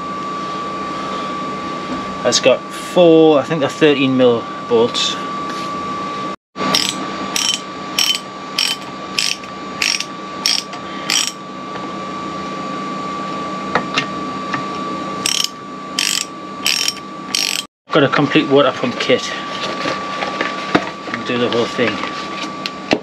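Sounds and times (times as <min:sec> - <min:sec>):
socket ratchet wrench clicking: 0:06.8 - 0:11.4, 0:15.2 - 0:17.7.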